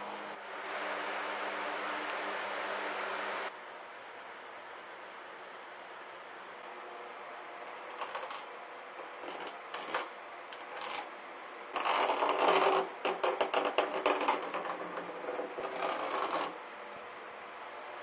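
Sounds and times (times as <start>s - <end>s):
plastic scraping on plastic lid: 9.2s - 11.1s, 11.8s - 16.6s.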